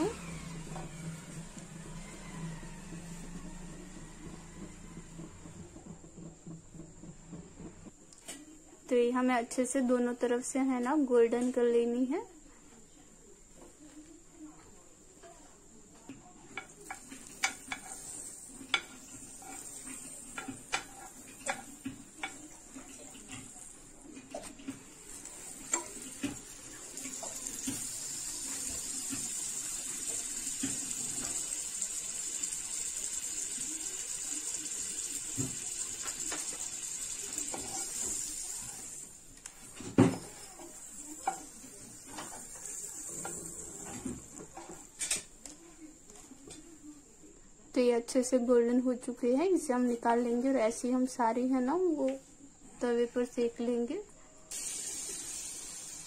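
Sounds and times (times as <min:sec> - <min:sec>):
spatula tapping and scraping pan: 0:16.5 - 0:23.7, 0:40.2 - 0:42.4
sandwich sizzling in a frying pan: 0:16.6 - 0:45.2, 0:54.5 - 0:56.0.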